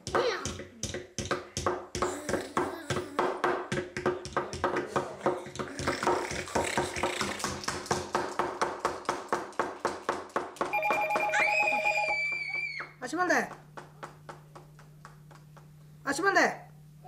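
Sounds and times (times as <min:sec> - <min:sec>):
plastic toys tapping on wood: 0:00.0 - 0:11.3
electronic tone with pulsing beep: 0:10.7 - 0:12.6.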